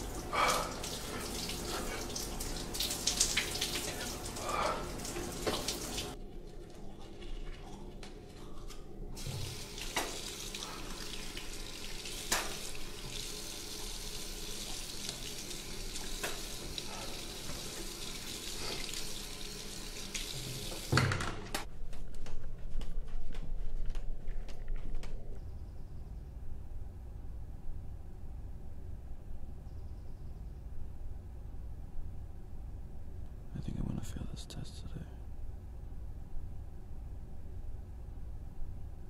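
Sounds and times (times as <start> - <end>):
tap water splashing into basin: 0.0 - 6.2, 9.2 - 13.2, 14.6 - 17.9.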